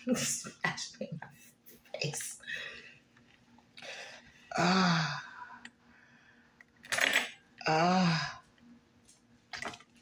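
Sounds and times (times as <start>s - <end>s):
woman groaning: 4.5s - 5.5s, 7.6s - 8.4s.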